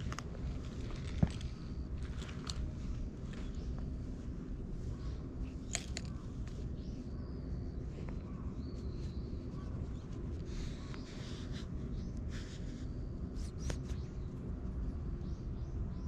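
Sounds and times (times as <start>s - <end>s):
hand rubbing cat fur: 8.8s - 14.0s.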